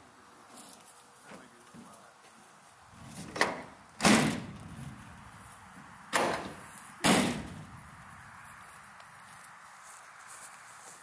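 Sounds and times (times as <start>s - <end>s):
trailer doors slamming: 3.0s - 5.2s, 6.1s - 7.8s.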